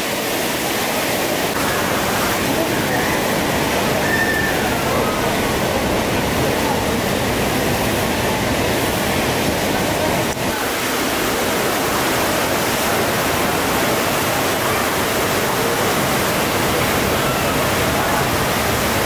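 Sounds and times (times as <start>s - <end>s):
ocean surf breaking: 1.2s - 19.0s.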